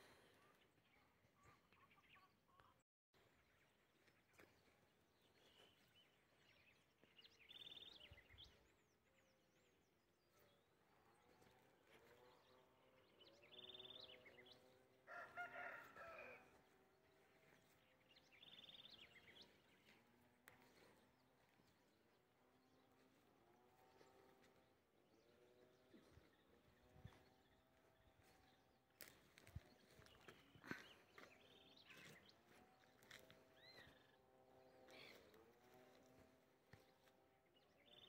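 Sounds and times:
rooster crowing: 0:15.0 - 0:16.7.

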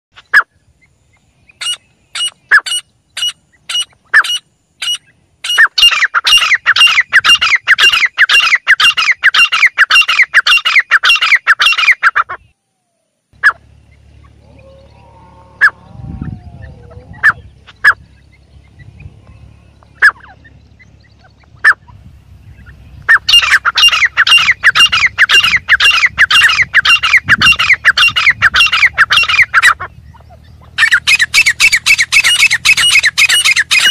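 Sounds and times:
partridge calling shrilly: 0:00.2 - 0:12.5, 0:13.4 - 0:15.0, 0:15.6 - 0:33.9.

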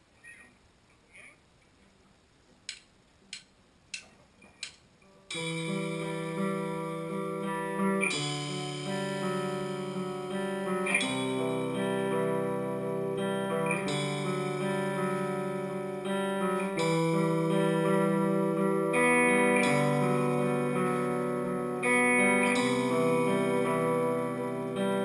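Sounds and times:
drumstick clicks: 0:02.6 - 0:05.7
guitar chords: 0:03.9 - 0:25.0.

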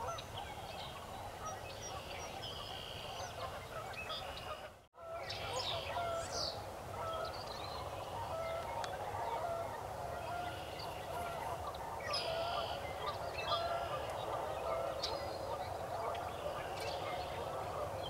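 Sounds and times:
chorus of animal calls: 0:08.3 - 0:18.0.

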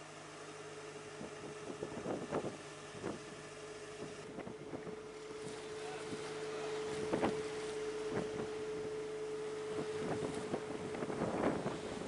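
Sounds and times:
wind and water rushing: 0:00.0 - 0:12.0
steady hum: 0:03.9 - 0:12.0
waves knocking and splashing hull: 0:04.0 - 0:12.0.

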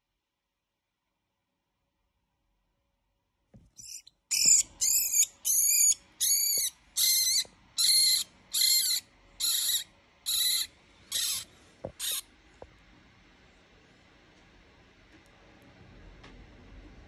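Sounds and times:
rat squealing: 0:03.8 - 0:12.2.

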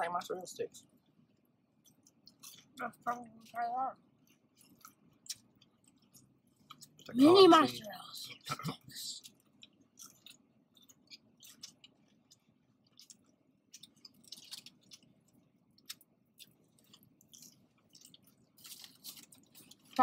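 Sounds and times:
person chewing: 0:00.9 - 0:07.4, 0:08.3 - 0:20.0.

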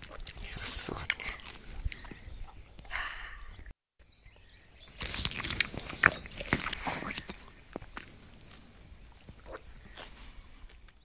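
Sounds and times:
rustling in grass: 0:04.8 - 0:10.7
dog crunching and chewing food: 0:04.9 - 0:10.1.

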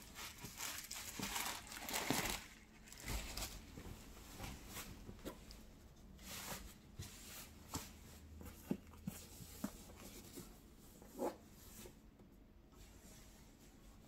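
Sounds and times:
cloth bag rustling: 0:00.0 - 0:05.1.

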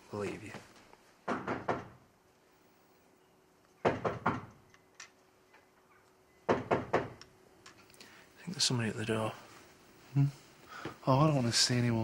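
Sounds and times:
knocking on a door: 0:01.2 - 0:02.0, 0:03.8 - 0:04.5, 0:06.5 - 0:07.2.

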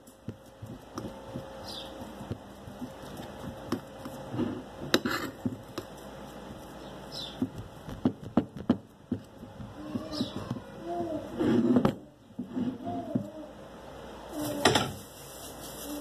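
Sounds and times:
utensil mashing potato on plate: 0:00.0 - 0:12.0.

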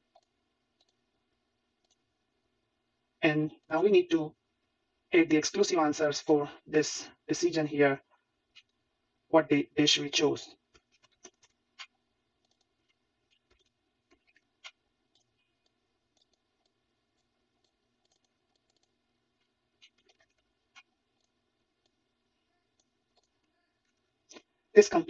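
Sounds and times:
faint computer mouse clicks: 0:00.1 - 0:01.0, 0:13.3 - 0:22.0.

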